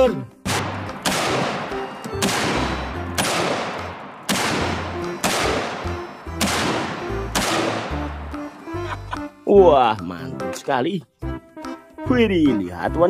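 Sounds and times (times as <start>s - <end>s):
background music with bass: 0.0s - 13.0s
revolver gunshots: 0.4s - 8.2s.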